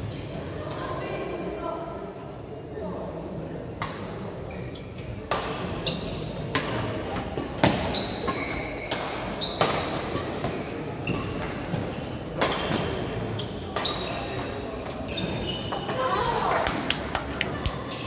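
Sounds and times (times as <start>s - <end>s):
court shoes squeaking: 0.0s - 0.6s, 4.4s - 18.0s.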